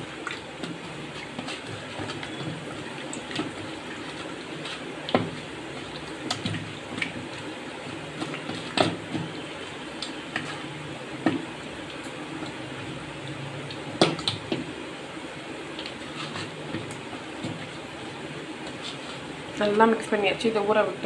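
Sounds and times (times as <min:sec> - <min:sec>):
hand squelching meat in marinade: 0:00.0 - 0:14.8.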